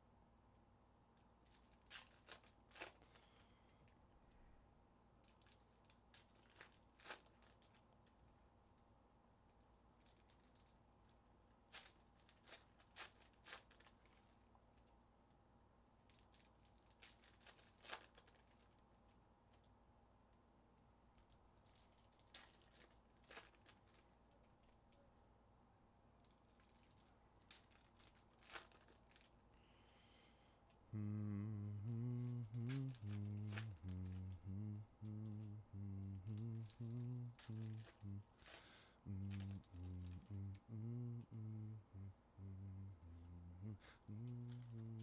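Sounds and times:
faint steady hum: 0.0s - 45.0s
foil packs tearing and crinkling: 16.4s - 18.8s.

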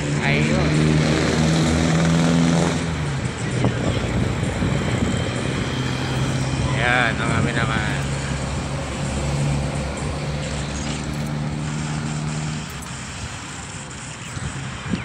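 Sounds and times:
vehicle engine humming: 0.0s - 15.0s
wind and road noise: 0.0s - 15.0s.

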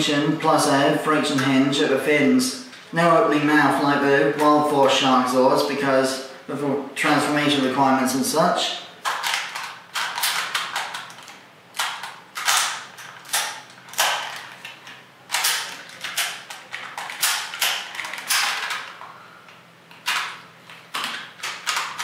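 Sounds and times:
plastic toy parts clicking: 9.0s - 18.9s, 20.0s - 22.0s.

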